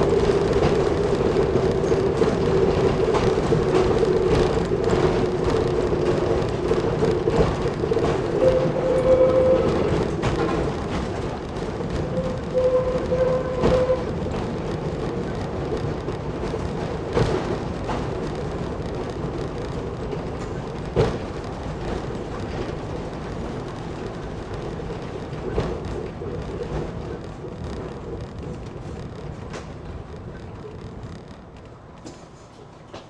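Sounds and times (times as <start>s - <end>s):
railbus running on track: 0.0s - 33.0s.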